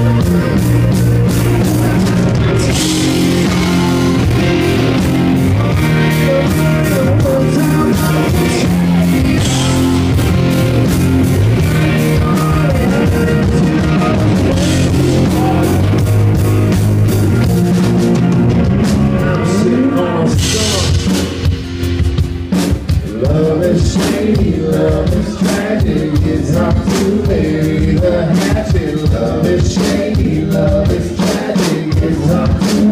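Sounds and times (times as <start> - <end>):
bass guitar: 0.0 - 32.9
drum kit: 0.0 - 32.9
electric guitars: 0.0 - 32.9.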